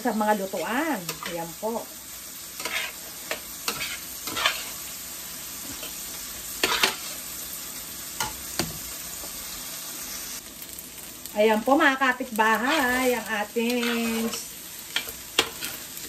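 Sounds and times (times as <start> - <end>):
rice sizzling in a pan: 0.0 - 16.0
metal spatula scraping a pan: 2.4 - 4.9, 5.6 - 7.2, 12.5 - 16.0.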